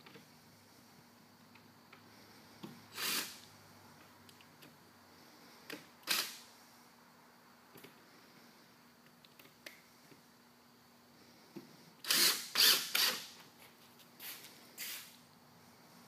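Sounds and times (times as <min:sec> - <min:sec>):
cordless drill driving screws: 0:02.9 - 0:03.4, 0:06.0 - 0:06.4, 0:12.0 - 0:13.3.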